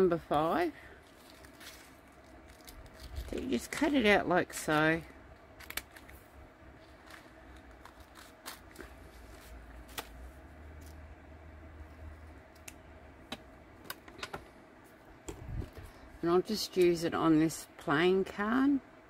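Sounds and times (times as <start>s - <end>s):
paper handling: 5.6s - 11.0s.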